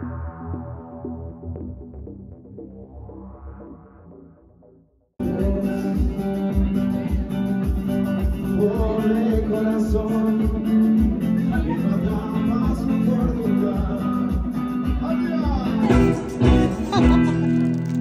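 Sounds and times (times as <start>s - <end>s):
latin acoustic guitar music: 15.8s - 18.0s.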